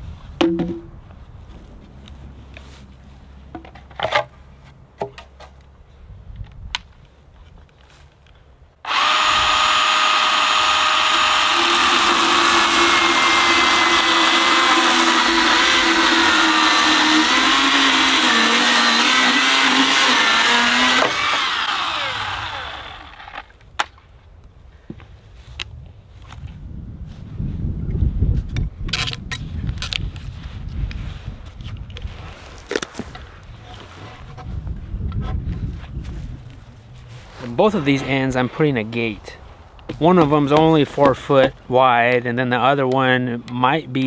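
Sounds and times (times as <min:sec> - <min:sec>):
sharp knocks: 0:00.4 - 0:00.9
electric chainsaw cutting wood: 0:08.8 - 0:23.6.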